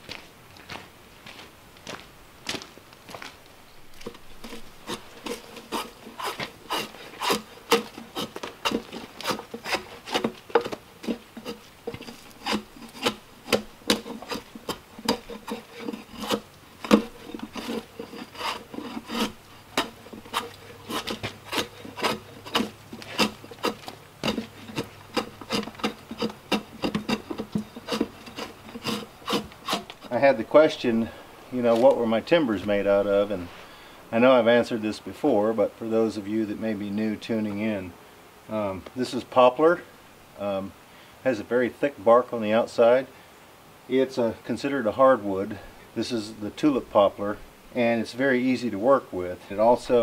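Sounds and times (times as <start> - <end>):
steel blade scraping bark: 4.4 - 31.2.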